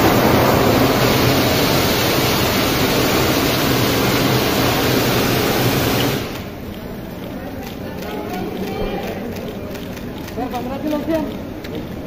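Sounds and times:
loud steady rushing noise: 0:00.0 - 0:07.0.

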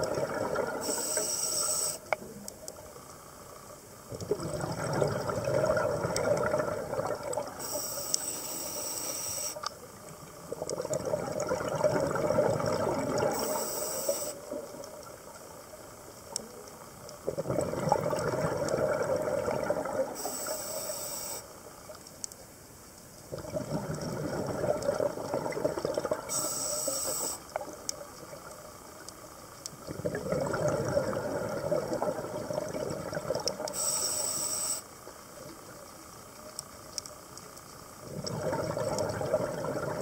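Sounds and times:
rush of bubbles: 0:00.0 - 0:01.0, 0:04.2 - 0:07.6, 0:10.5 - 0:13.4, 0:17.2 - 0:20.3, 0:23.3 - 0:26.4, 0:29.8 - 0:33.7, 0:38.0 - 0:40.0.

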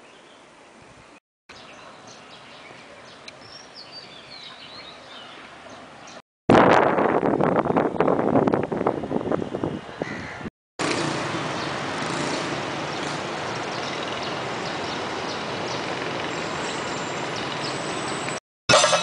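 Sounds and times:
street traffic noise: 0:07.8 - 0:19.0.

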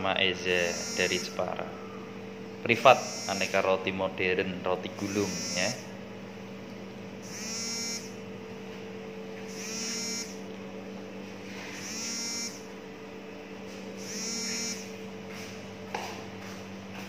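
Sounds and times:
electrical hum: 0:00.0 - 0:17.0
oven timer buzzer: 0:00.5 - 0:01.8, 0:02.8 - 0:03.7, 0:05.0 - 0:06.0, 0:07.2 - 0:08.6, 0:09.4 - 0:10.5, 0:11.5 - 0:12.8, 0:13.7 - 0:15.4.

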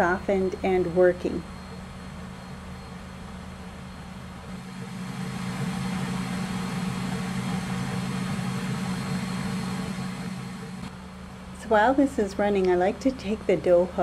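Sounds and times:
stand mixer motor running: 0:04.5 - 0:10.9.

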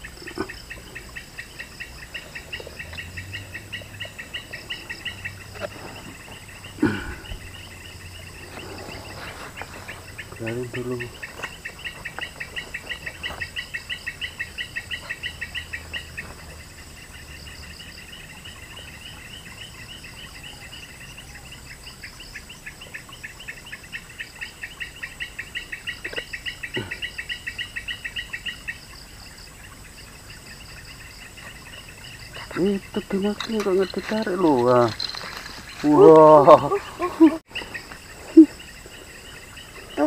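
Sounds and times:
insect chirping: 0:00.0 - 0:40.0.

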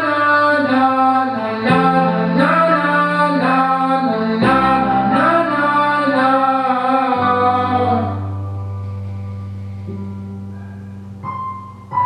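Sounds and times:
man singing wordless melody: 0:00.0 - 0:08.6
held accompaniment chords: 0:00.0 - 0:12.0.

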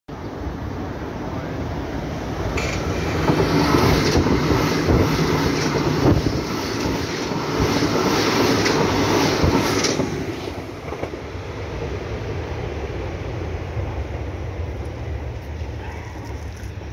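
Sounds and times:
train wheels clacking over rail joints: 0:02.5 - 0:11.2.

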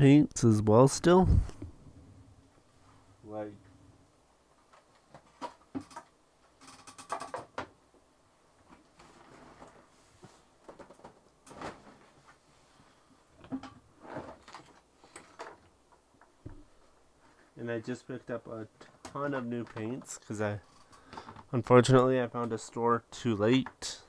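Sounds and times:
plastic pots clicking and rattling: 0:04.6 - 0:07.8.

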